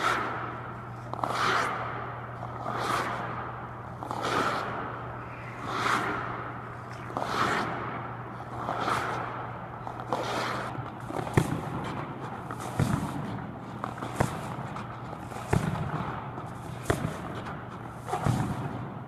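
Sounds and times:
skate blades scraping ice: 0.0s - 18.8s
low hum: 0.0s - 19.0s.

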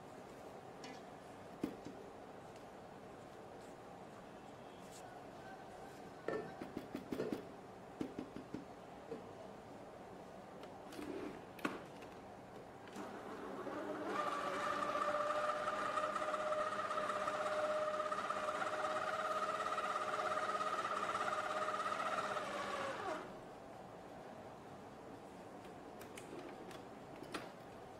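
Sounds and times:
stand mixer motor whine: 13.6s - 23.2s.

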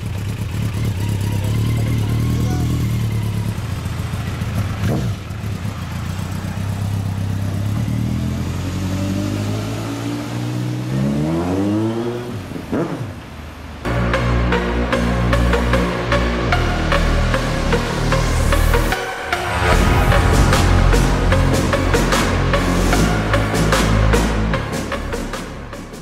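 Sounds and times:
motorcycle engine accelerating: 0.0s - 13.2s.

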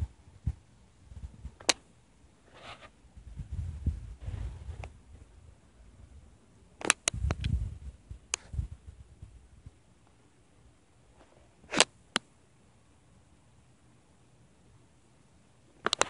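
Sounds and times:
low rumble on microphone: 0.0s - 1.6s, 3.1s - 6.4s, 7.1s - 9.8s.

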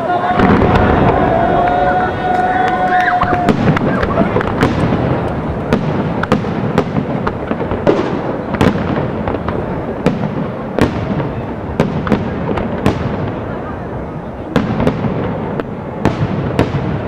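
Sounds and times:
firework shells bursting: 0.3s - 13.2s.

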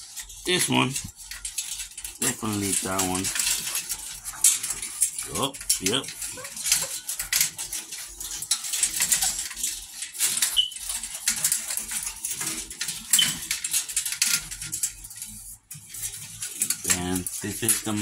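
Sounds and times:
claws scratching on wire crate: 0.0s - 18.0s
puppy squeaks: 10.6s - 10.8s.

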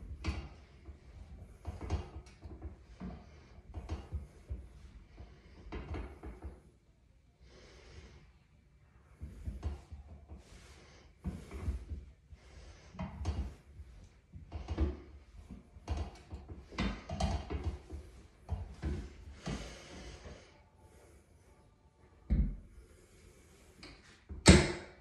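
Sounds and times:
exercise machine weight knocking: 0.0s - 4.7s, 5.4s - 6.7s, 14.3s - 19.6s, 24.3s - 25.0s.

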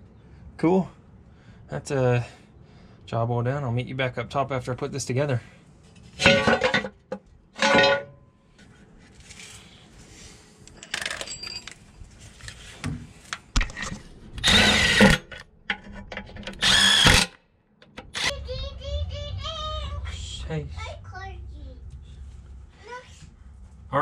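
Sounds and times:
metal clinks: 10.8s - 12.0s
power tool bursts: 14.4s - 15.3s, 16.6s - 17.4s.

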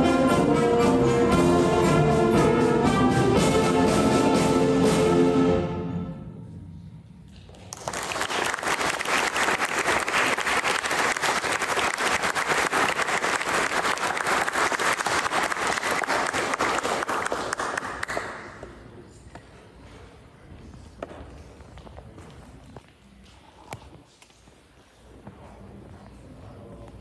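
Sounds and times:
audience applause: 7.6s - 18.6s.

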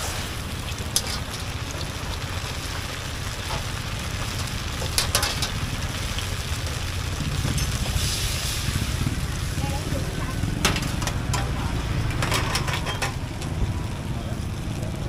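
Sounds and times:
oil sizzling in wok: 0.0s - 15.0s.

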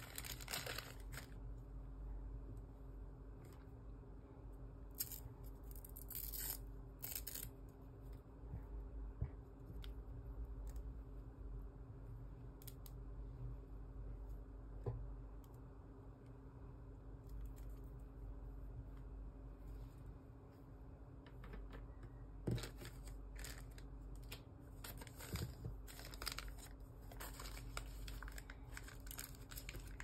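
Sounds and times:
crinkly plastic rustles: 0.0s - 1.5s, 22.4s - 30.0s.

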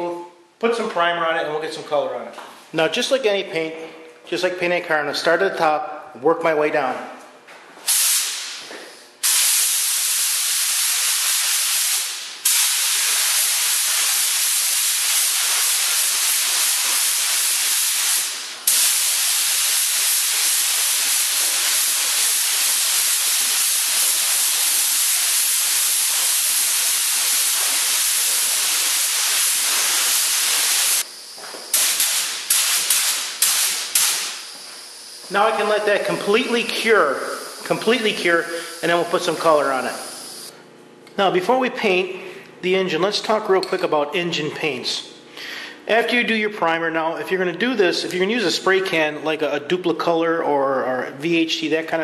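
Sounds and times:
spray gun hissing: 7.8s - 8.6s, 9.2s - 40.5s.

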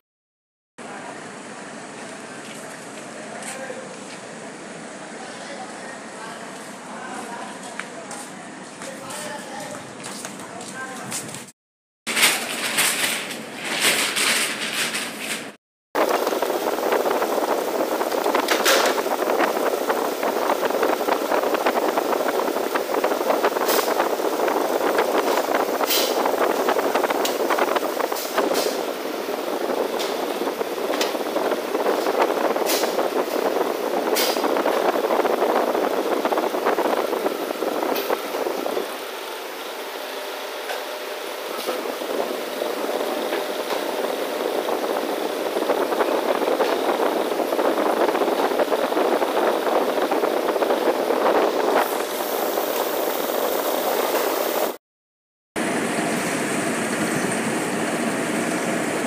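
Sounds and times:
mixer whirring: 16.0s - 54.8s, 55.6s - 59.0s
dough mixer running: 55.6s - 59.0s.

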